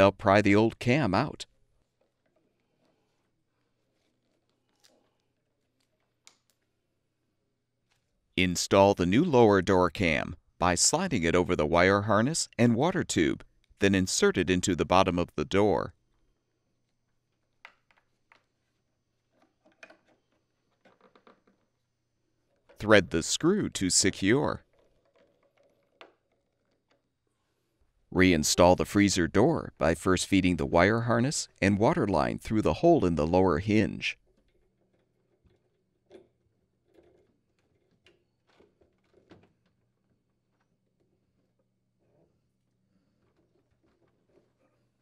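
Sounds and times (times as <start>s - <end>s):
faint plastic clicks and rustles: 1.5s - 8.2s, 16.0s - 22.8s, 24.6s - 27.9s, 34.2s - 45.0s
faint clicks and rustles of wiring: 1.8s - 6.8s.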